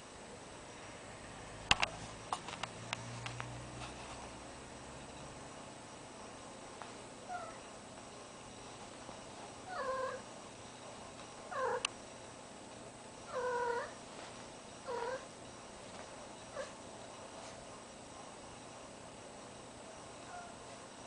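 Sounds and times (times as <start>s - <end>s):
cat meowing: 11.5s - 11.8s, 13.3s - 14.0s.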